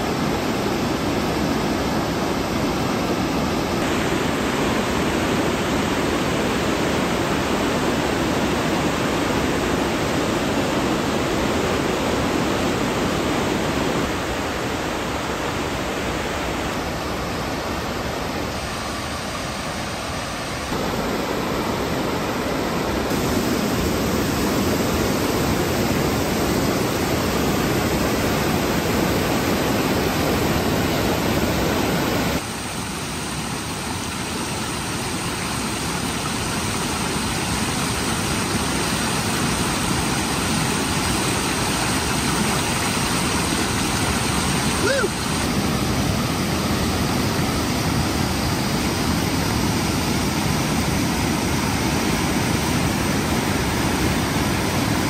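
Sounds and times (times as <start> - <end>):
creek rushing over rocks: 0.0 - 55.0.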